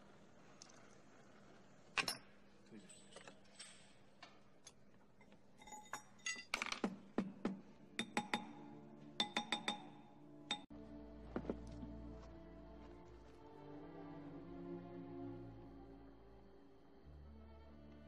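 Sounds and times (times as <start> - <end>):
ringing metal taps: 8.0 - 8.6, 9.2 - 10.6.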